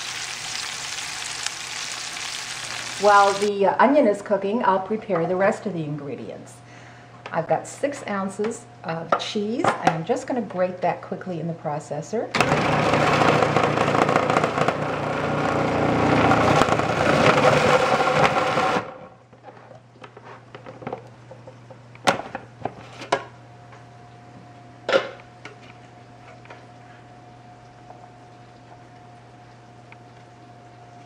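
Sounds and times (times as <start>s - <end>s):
food processor motor whirring: 12.4s - 19.0s.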